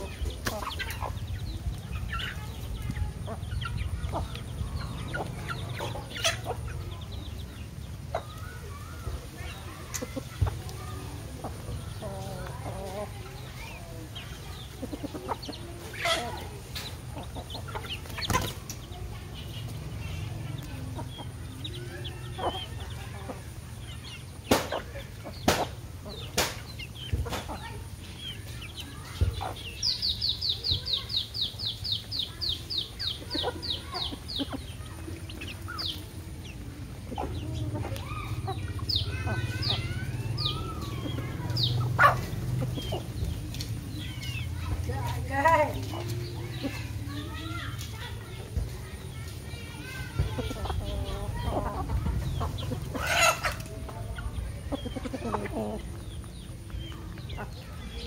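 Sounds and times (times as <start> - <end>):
chickens clucking softly: 0.0 - 45.2, 45.8 - 58.0.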